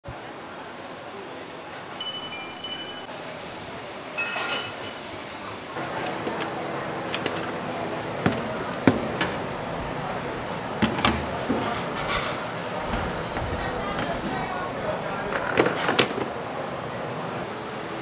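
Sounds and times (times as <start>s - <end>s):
short chime jingle: 2.0s - 3.1s
metal bowls and utensils clinking: 4.2s - 5.4s.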